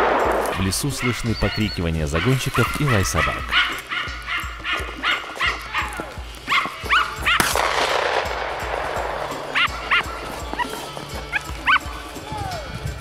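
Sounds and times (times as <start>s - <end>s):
dogs barking: 0.1s - 7.8s, 8.6s - 12.0s
sharp bang with echo: 7.4s - 9.6s.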